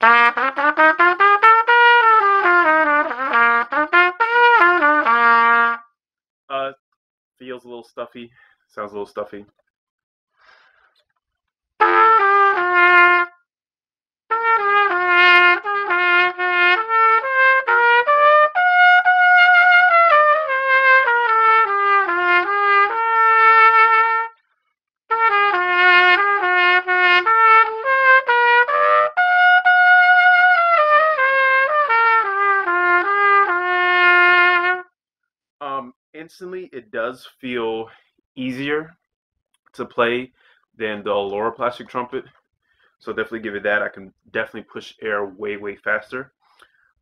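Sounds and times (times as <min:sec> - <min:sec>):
plastic trumpet melody: 0:00.0 - 0:05.9, 0:11.8 - 0:13.4, 0:14.3 - 0:24.4, 0:25.1 - 0:34.9.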